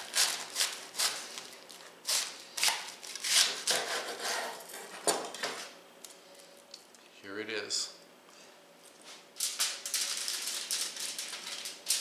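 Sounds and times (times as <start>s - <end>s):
knife sawing through cabbage: 0.0s - 1.4s, 2.0s - 4.7s.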